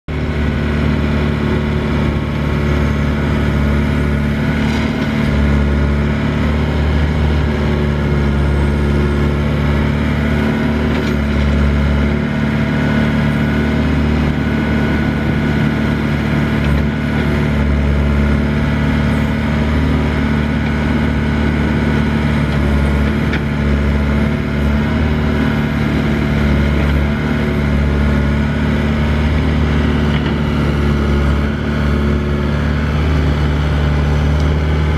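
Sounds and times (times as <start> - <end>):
excavator diesel engine running: 0.1 - 34.9
excavator arm digging gravel: 2.7 - 6.0.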